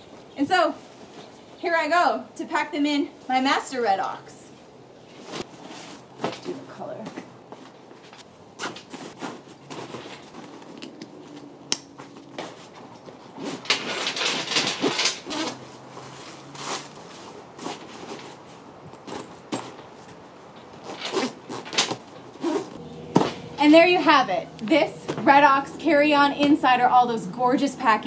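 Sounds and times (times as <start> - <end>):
nylon bags rustling: 7.6 - 24.0.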